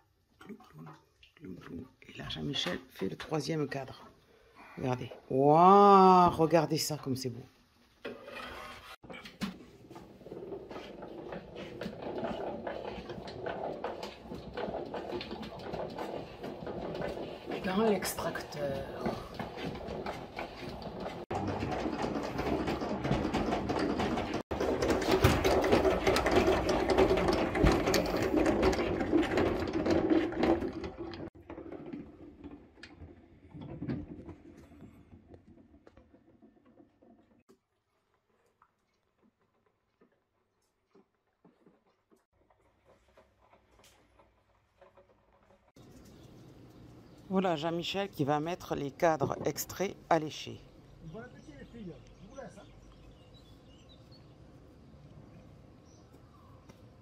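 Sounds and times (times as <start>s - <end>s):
hand-cranked extractor churning: 8.2s - 37.5s, 40.9s - 53.5s.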